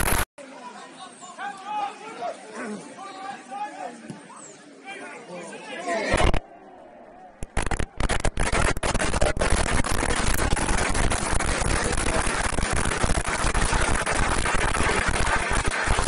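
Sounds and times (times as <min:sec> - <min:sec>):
crowd cheering and clapping: 0:07.3 - 0:16.0.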